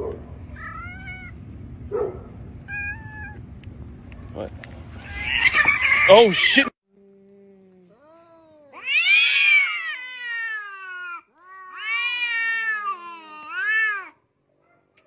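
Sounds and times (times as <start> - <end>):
cat yowling: 0.5 - 1.4, 2.6 - 3.4, 5.0 - 6.6, 8.0 - 14.2.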